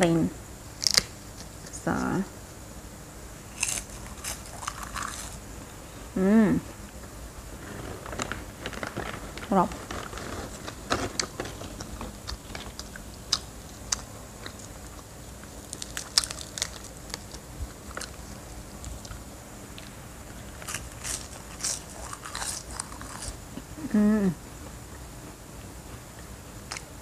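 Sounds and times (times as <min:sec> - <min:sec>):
crunchy chewing: 0:00.7 - 0:01.8, 0:03.5 - 0:05.6, 0:06.8 - 0:23.8, 0:24.6 - 0:27.0
seaweed snack crackling: 0:00.8 - 0:01.8, 0:03.5 - 0:05.4, 0:15.6 - 0:19.2, 0:20.5 - 0:23.4
person humming mm: 0:06.1 - 0:06.7, 0:23.8 - 0:24.4.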